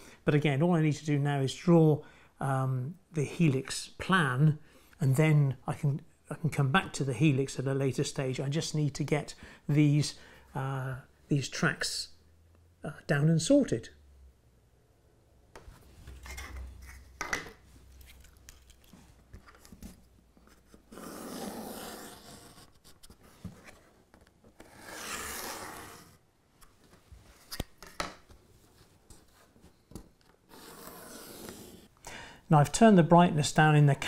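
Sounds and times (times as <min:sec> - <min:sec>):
pencil scratching on plywood: 0:20.5 - 0:23.4, 0:24.6 - 0:26.2, 0:30.5 - 0:31.9.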